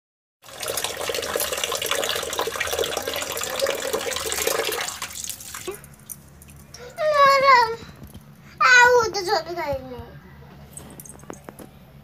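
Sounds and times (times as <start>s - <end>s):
tap water running into pot: 0.4s - 5.8s
water splashing and sloshing: 0.5s - 6.8s.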